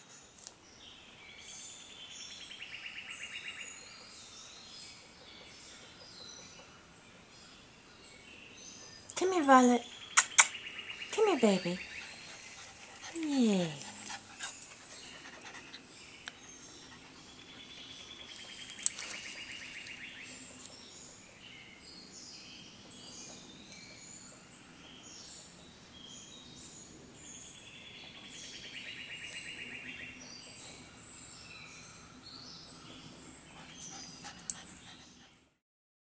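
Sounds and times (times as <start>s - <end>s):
songbirds singing: 0.0s - 35.5s
sharp click: 10.2s - 10.6s.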